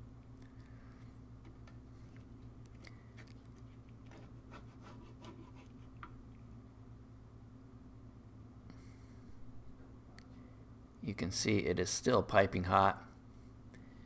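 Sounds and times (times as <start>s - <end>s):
low steady hum: 0.0s - 14.0s.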